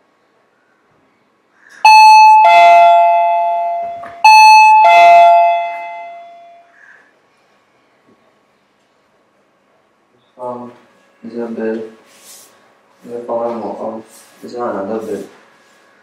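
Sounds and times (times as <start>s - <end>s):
two-tone doorbell chime: 1.9s - 6.7s.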